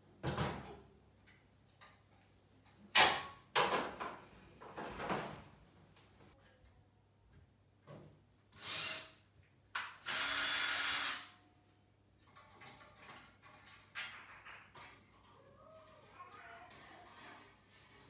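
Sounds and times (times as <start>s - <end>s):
cordless drill running: 8.6s - 9.1s, 10.0s - 11.3s.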